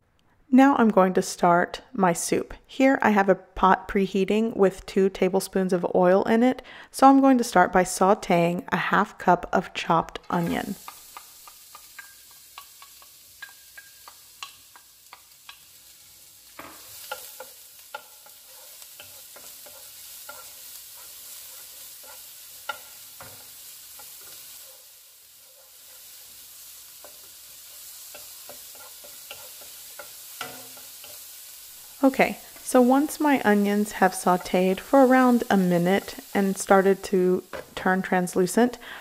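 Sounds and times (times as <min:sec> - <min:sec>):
onion sizzling in oil: 0:10.3 - 0:39.0
wooden spoon scraping a pot: 0:16.5 - 0:24.8, 0:27.0 - 0:31.2.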